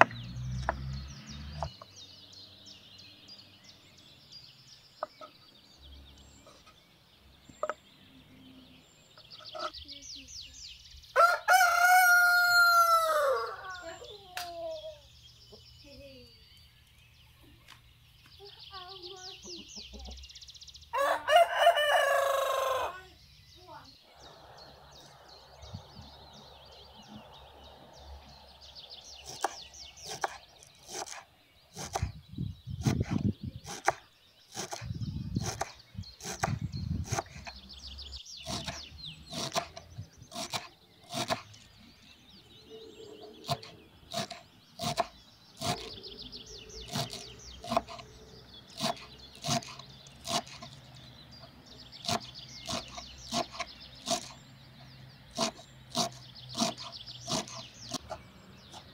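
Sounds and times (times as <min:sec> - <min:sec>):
small birds chirping: 0:00.0 - 0:58.9
knife chopping on wooden board: 0:29.2 - 0:31.2, 0:31.8 - 0:32.1, 0:32.8 - 0:37.6, 0:38.5 - 0:41.5, 0:43.4 - 0:45.9, 0:46.9 - 0:48.0, 0:48.8 - 0:50.8, 0:52.0 - 0:54.3, 0:55.4 - 0:58.2.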